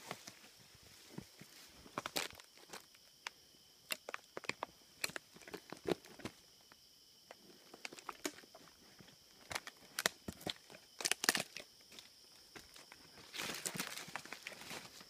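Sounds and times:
twigs snapping underfoot: 1.9 - 6.3, 7.7 - 8.5, 9.4 - 11.7
footsteps through brush and grass: 12.5 - 15.0.

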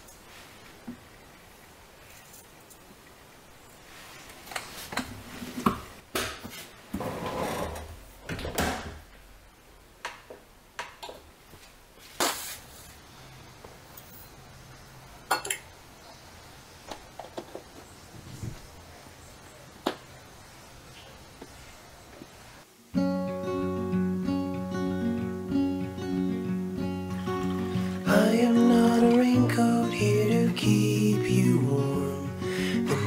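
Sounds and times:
rustling and scraping: 2.0 - 2.9, 3.8 - 8.0, 11.5 - 13.0.

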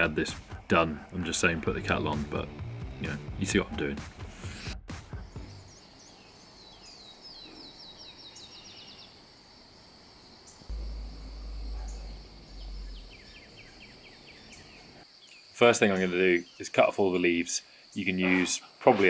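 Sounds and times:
small birds trilling: 5.2 - 9.4, 10.1 - 18.8
faint high whine: 10.7 - 15.0.

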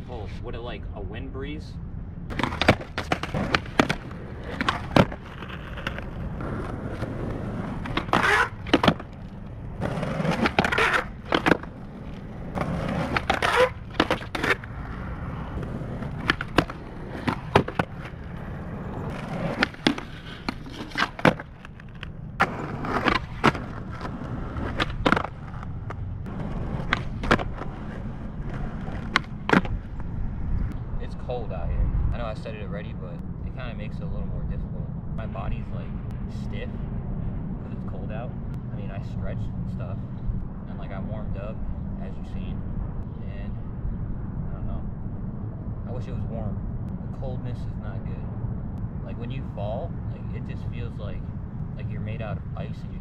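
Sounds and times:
skateboard wooden clacks: 2.3 - 7.0, 7.8 - 14.7, 15.6 - 18.1, 19.1 - 29.8
skateboard wheels rolling on asphalt: 2.3 - 31.6.

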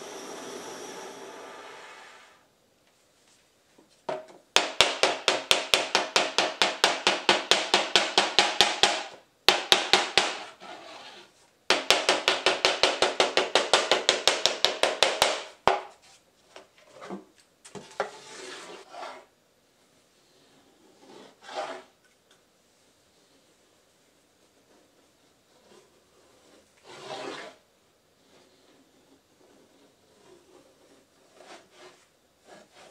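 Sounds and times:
hammer tapping on board: 4.1 - 10.4, 11.7 - 15.9.

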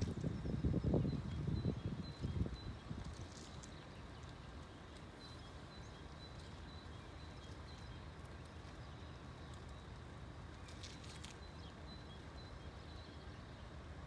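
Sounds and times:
brief rustle: 10.5 - 11.5.

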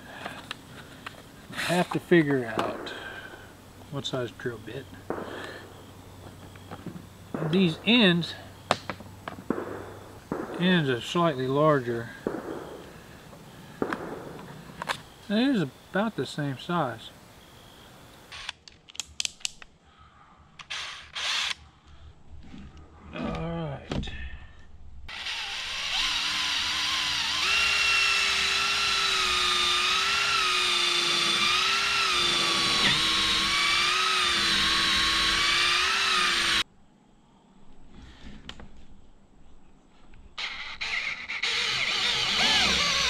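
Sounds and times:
cordless drill whining: 20.7 - 21.6, 25.1 - 36.6, 40.4 - 43.0.

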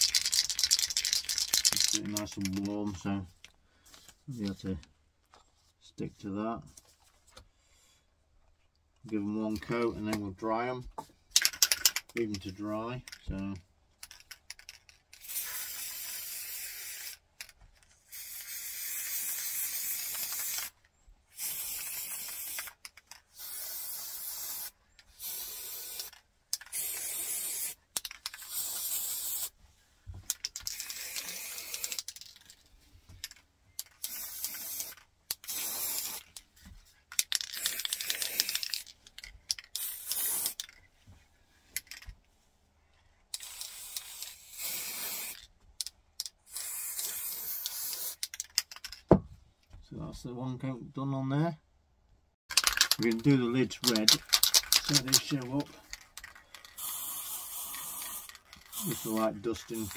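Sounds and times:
spray paint can hissing: 0.0 - 2.6, 15.2 - 17.2, 18.1 - 29.6, 30.3 - 32.5, 33.8 - 36.4, 37.2 - 38.9, 39.7 - 40.7, 43.3 - 45.4, 46.5 - 48.6, 52.5 - 59.9.

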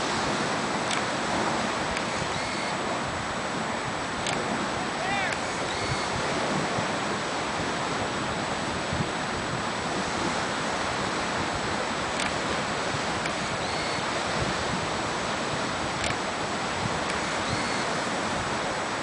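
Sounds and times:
steady rushing noise: 0.0 - 19.0
faint clicks: 0.8 - 1.1, 1.9 - 2.2, 4.2 - 4.4, 12.2 - 12.4, 16.0 - 16.2.

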